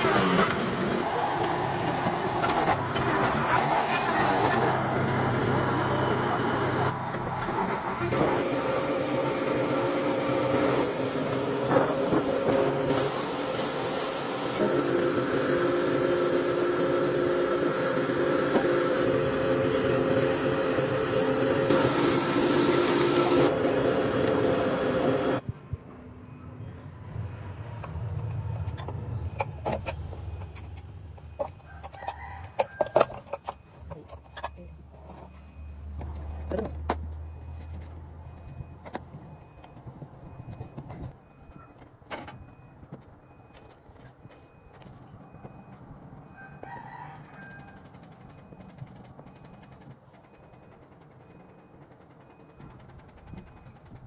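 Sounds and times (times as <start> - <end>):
woodworking machine running: 0.0 - 25.4, 47.6 - 54.0
wooden clatter: 47.2 - 54.0.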